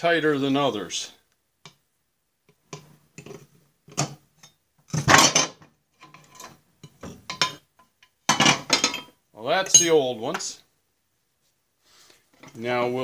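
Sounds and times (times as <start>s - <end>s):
metal parts clattering: 5.0s - 6.6s, 8.3s - 9.1s
metal clanks and knocks: 5.0s - 7.6s, 8.3s - 9.1s.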